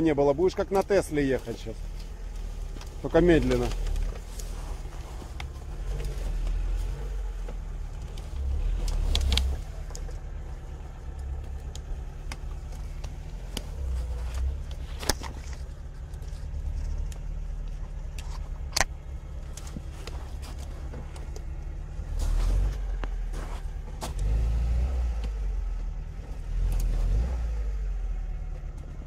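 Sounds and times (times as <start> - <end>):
car engine idling: 0.0 - 29.0.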